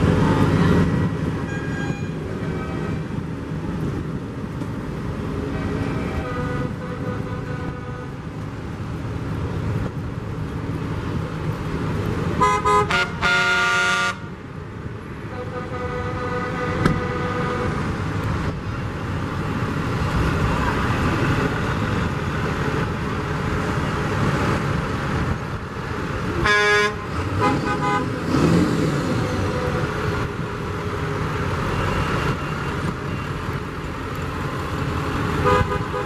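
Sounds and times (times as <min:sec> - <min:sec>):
truck engines running: 0:00.0 - 0:36.0
vehicle horn honking: 0:12.4 - 0:14.2, 0:26.4 - 0:28.1, 0:35.4 - 0:36.0.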